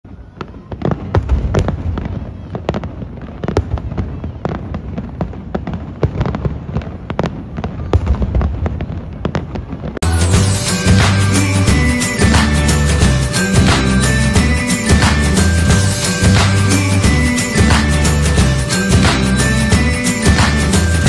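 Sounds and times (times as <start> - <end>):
music: 10.0 - 21.0.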